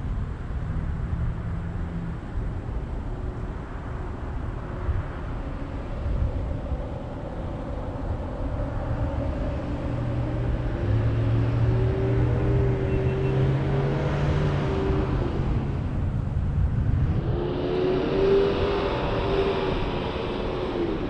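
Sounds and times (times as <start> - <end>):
road noise: 0.0 - 21.0.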